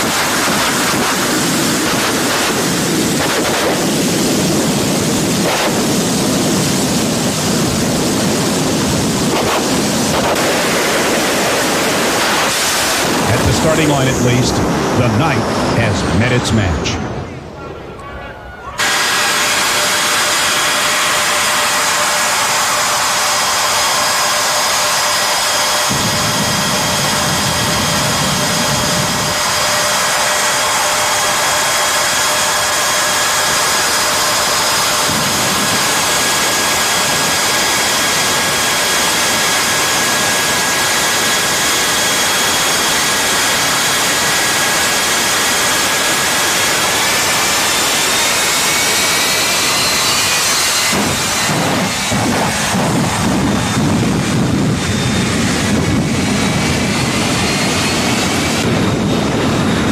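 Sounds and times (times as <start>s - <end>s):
jet engine whine and hiss: 0.0s - 59.9s
low engine rumble: 13.0s - 18.8s.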